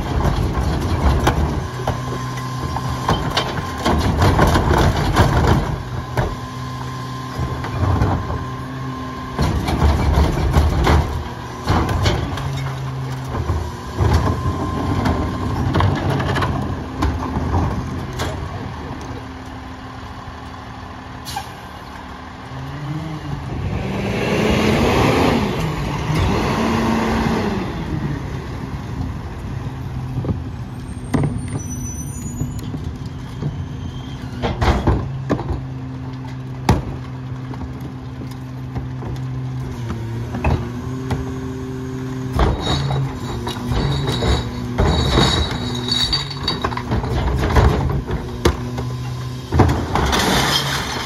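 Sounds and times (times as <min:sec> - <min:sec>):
diesel truck engine revving and idling: 0:12.9 - 0:31.2
loud air brake hiss: 0:21.2 - 0:21.7.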